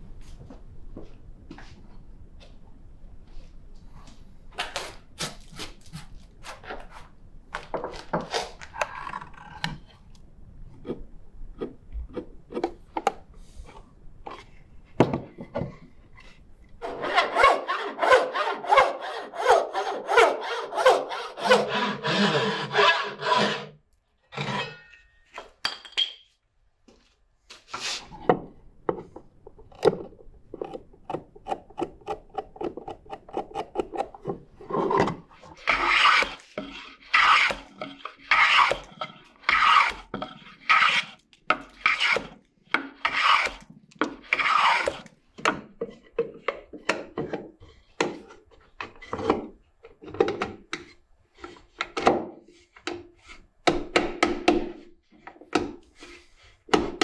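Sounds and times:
hand tool rasping on hardwood: 17.0 - 23.8, 35.6 - 42.3, 43.0 - 43.6, 44.2 - 45.1.

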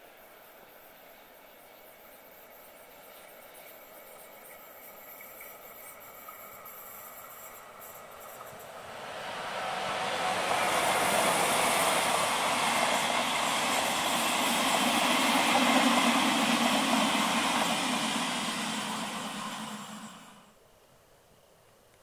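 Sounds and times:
train wheels rumbling on rails: 2.9 - 20.5.

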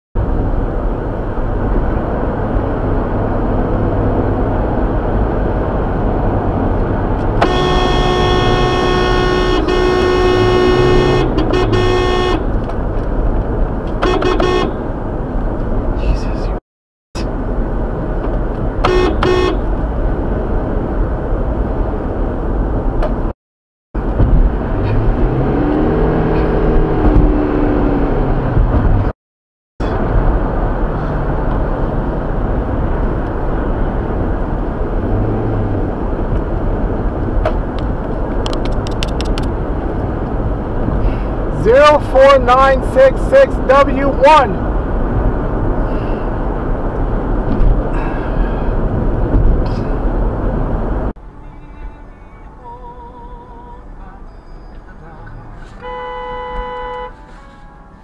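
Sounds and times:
car road and engine noise: 0.2 - 16.6, 17.2 - 23.4, 24.0 - 29.2, 29.8 - 58.0
car horn honking: 7.4 - 12.6, 14.0 - 14.9, 18.8 - 19.8, 54.3 - 58.0.

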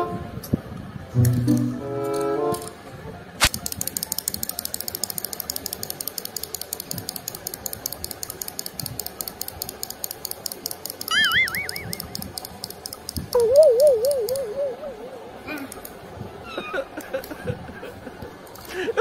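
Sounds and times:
wind-up toy clicking: 1.2 - 2.7, 3.4 - 16.0, 17.0 - 17.6, 18.4 - 18.8
wavering high-pitched tone: 11.1 - 12.2, 13.4 - 15.2.

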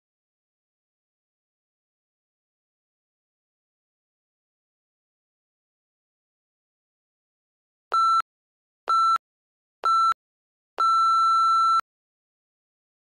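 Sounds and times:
long timer beep: 9.8 - 10.2, 10.8 - 11.8
short timer beeps: 10.8 - 11.8.

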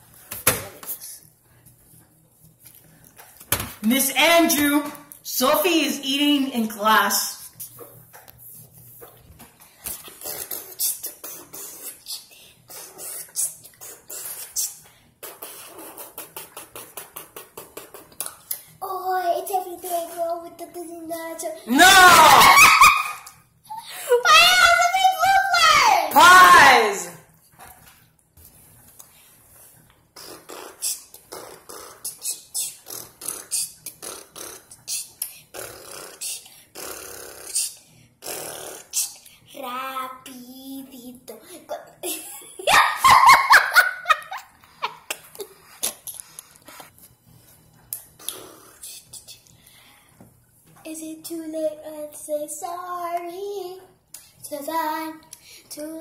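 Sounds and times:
child beatboxing hissing sounds: 9.8 - 22.3, 30.2 - 39.7, 48.2 - 49.5.

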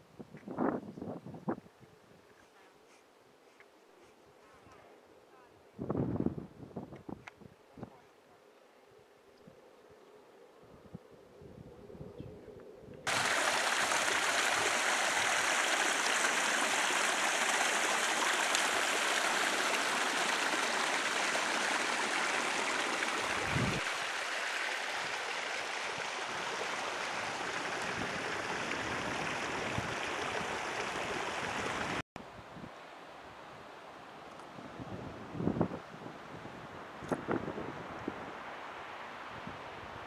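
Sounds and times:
mountain stream rushing: 13.1 - 32.0.

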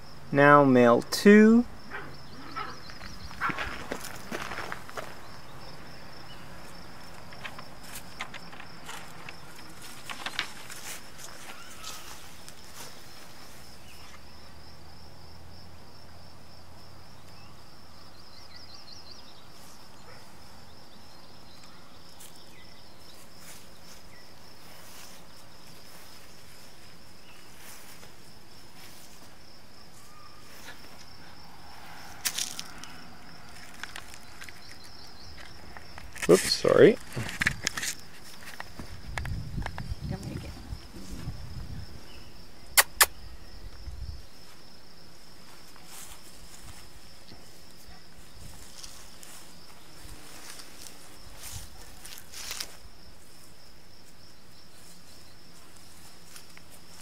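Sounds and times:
pulsing insect trill: 0.0 - 57.0
light footsteps and scuffs: 2.6 - 5.4, 6.6 - 14.3, 21.6 - 39.4, 45.3 - 57.0
sharp clicks: 42.8 - 43.2.

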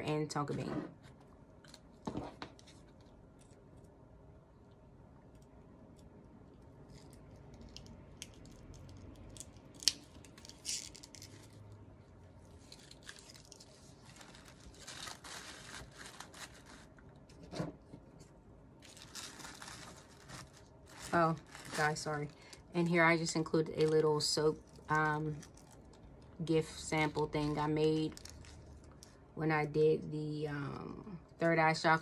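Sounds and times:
bags and tissue paper rustling: 12.6 - 17.0, 18.8 - 25.8.

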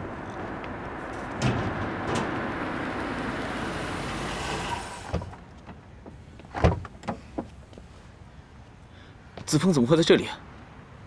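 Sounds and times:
car running: 0.0 - 7.8.

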